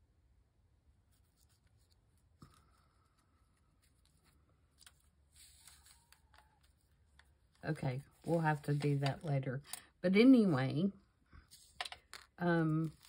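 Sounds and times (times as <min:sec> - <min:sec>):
paper rustling and crinkling: 0:01.2 - 0:09.3, 0:11.5 - 0:13.0.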